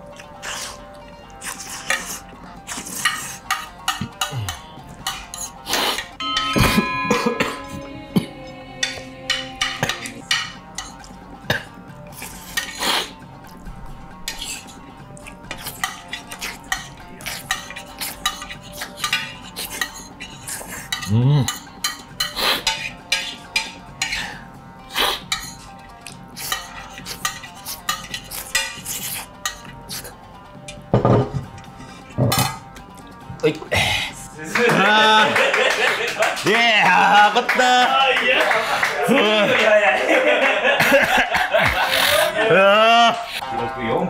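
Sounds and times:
metal spoon scraping a plate: 0:01.4 - 0:04.3, 0:05.0 - 0:07.8, 0:12.3 - 0:13.2, 0:15.5 - 0:24.3, 0:26.4 - 0:30.1.

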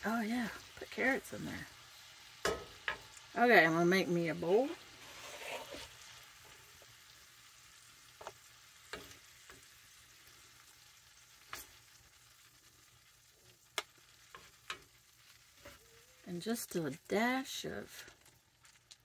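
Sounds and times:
food sizzling in skillet: 0:00.0 - 0:19.0
wooden spoon scraping: 0:04.8 - 0:06.8.

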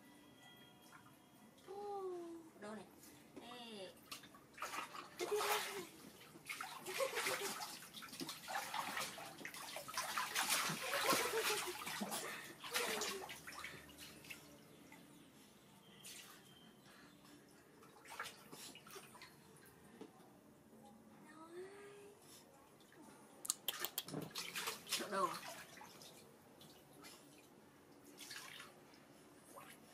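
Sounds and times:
water splashing in paddling pool: 0:04.1 - 0:14.6, 0:23.8 - 0:28.9.

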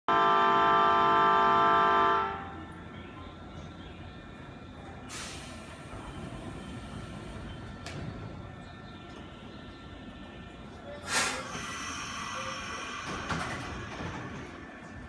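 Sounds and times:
electric train horn: 0:00.1 - 0:02.7
train low rumble: 0:00.1 - 0:15.0.

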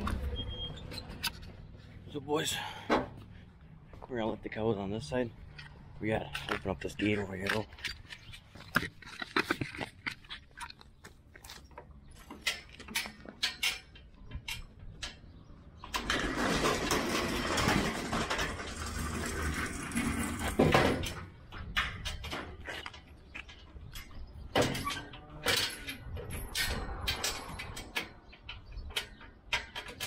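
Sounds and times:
footsteps: 0:00.0 - 0:04.6.

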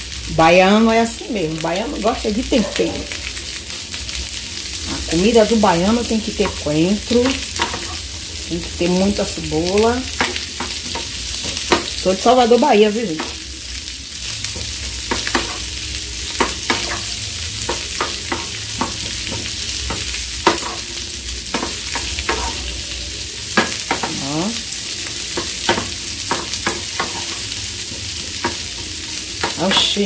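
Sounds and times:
meat and onions sizzling: 0:00.0 - 0:30.0
spatula scraping a pan: 0:06.4 - 0:08.4, 0:14.5 - 0:22.9, 0:25.1 - 0:30.0.

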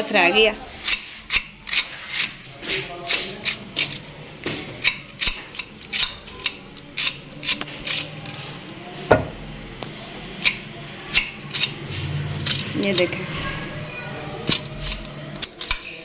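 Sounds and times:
heavy knife knock: 0:09.1 - 0:09.4.

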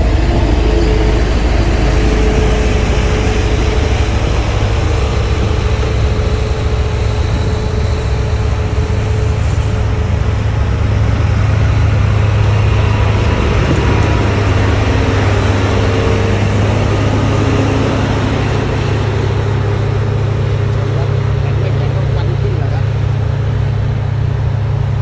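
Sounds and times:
diesel engine droning: 0:00.0 - 0:25.0.

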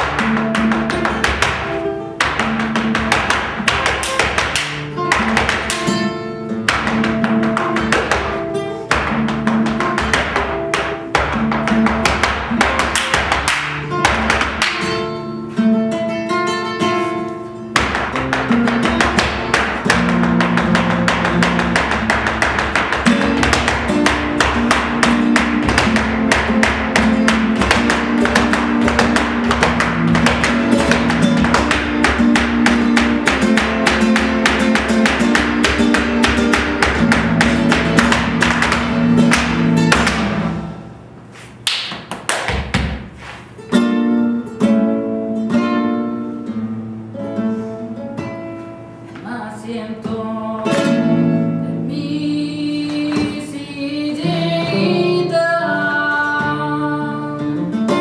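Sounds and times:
stamping footwork on wooden stage: 0:00.0 - 0:15.2, 0:16.8 - 0:43.6
flamenco guitar: 0:00.0 - 0:58.0.

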